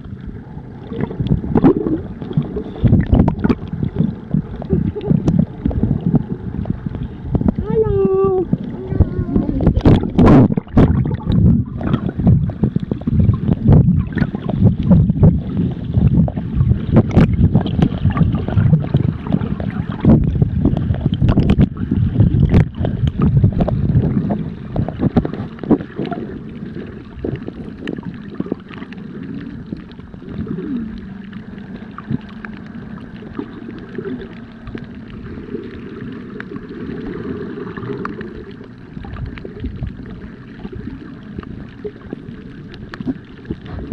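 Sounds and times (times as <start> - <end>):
low underwater rumble: 0.0 - 43.9
underwater water rushing: 0.0 - 43.9
sharp underwater clicks: 0.9 - 7.6, 9.6 - 15.4, 16.2 - 26.3, 37.7 - 43.9.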